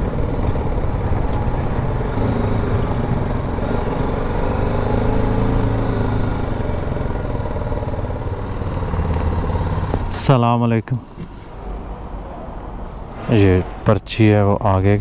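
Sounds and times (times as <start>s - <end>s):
motorcycle engine running: 0.0s - 10.4s.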